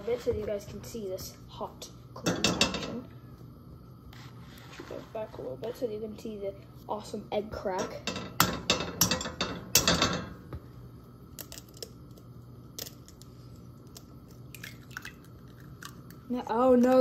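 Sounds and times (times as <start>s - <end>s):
eggshell cracking: 11.3s - 16.9s.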